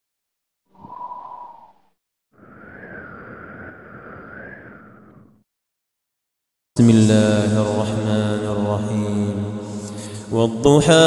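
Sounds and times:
airy noise with wavering whistle: 0:00.7 - 0:05.4.

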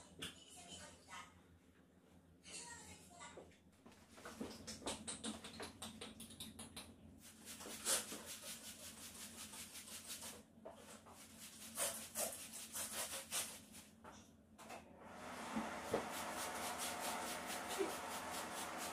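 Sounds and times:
cloth wiping a counter: 0:07.2 - 0:14.0, 0:15.6 - 0:18.9
spray bottle hissing sprays: 0:16.0 - 0:18.9.

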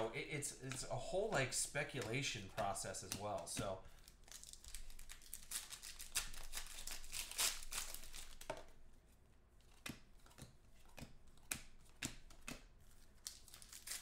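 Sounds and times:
foil pack crinkling and tearing: 0:02.1 - 0:08.5, 0:13.1 - 0:14.0
cards snapping as flicked: 0:09.7 - 0:14.0.

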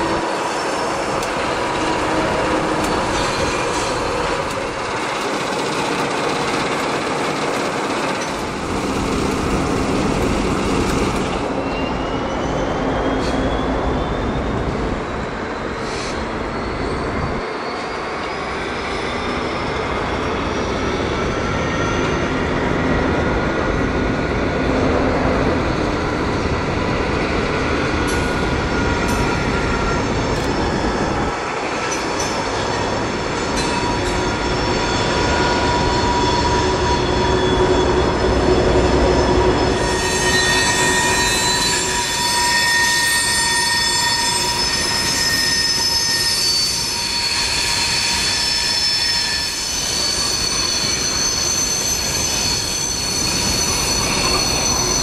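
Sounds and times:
diesel locomotive engine: 0:00.0 - 0:55.0
train rolling: 0:00.0 - 0:55.0
wheels squealing: 0:28.7 - 0:55.0.

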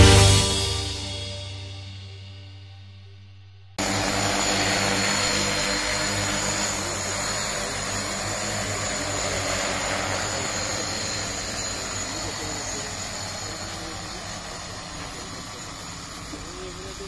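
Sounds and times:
drone propellers whirring: 0:03.8 - 0:17.0
high propeller whine: 0:03.8 - 0:17.0.

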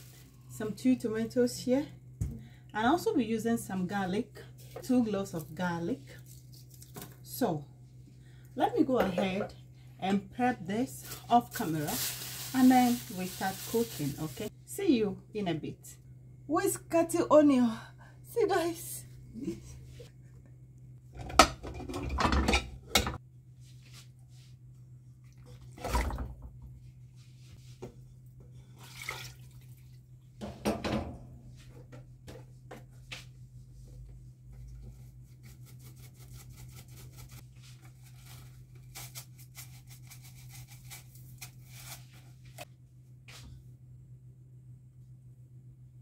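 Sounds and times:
steady low hum: 0:00.0 - 0:46.0
dishes clattering: 0:21.2 - 0:23.2.

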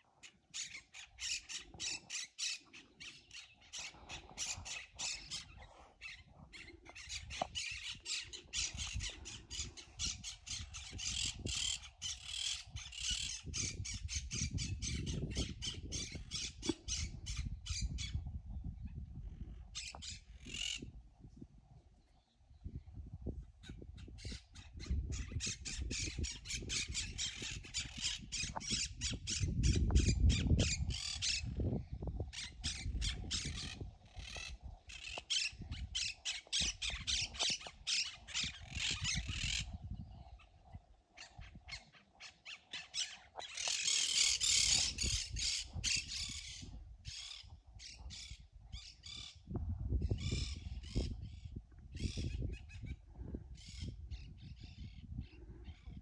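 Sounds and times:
birds squawking: 0:00.2 - 0:18.1, 0:32.3 - 0:39.8, 0:41.2 - 0:47.5
wind rumble on microphone: 0:00.9 - 0:56.0.

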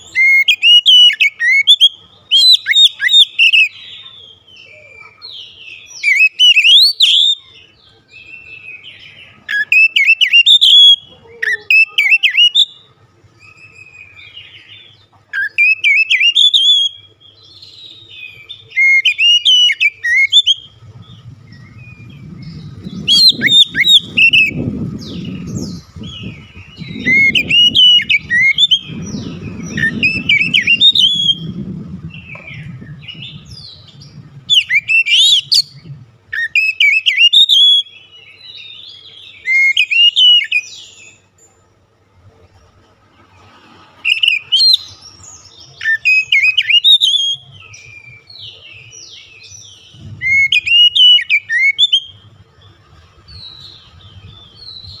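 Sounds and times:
bird singing whistled phrases: 0:00.0 - 0:14.8, 0:15.4 - 0:31.6, 0:32.2 - 0:38.1, 0:38.8 - 0:41.2, 0:44.0 - 0:45.0, 0:45.7 - 0:48.5, 0:49.1 - 0:52.2
low rumble: 0:20.7 - 0:27.5, 0:28.2 - 0:36.3, 0:49.8 - 0:50.6.

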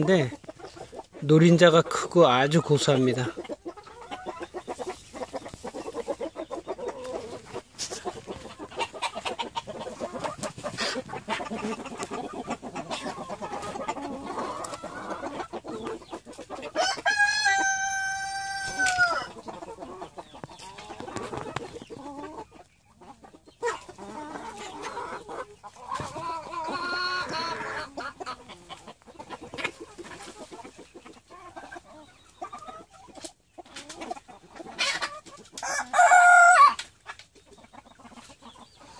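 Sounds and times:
chickens clucking: 0:00.0 - 0:38.9
rooster crowing: 0:16.8 - 0:19.3, 0:35.6 - 0:36.8.

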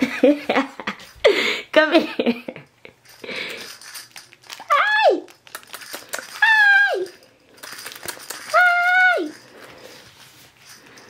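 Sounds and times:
faint rustling: 0:07.0 - 0:11.0.

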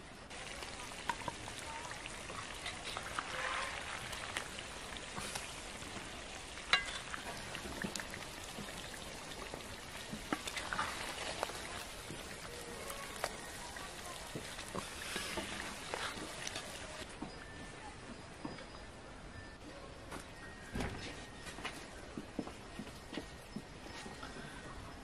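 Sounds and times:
meat sizzling in a pot: 0:00.3 - 0:17.0
wooden spatula scraping and clinking: 0:06.7 - 0:08.0, 0:14.4 - 0:17.0.

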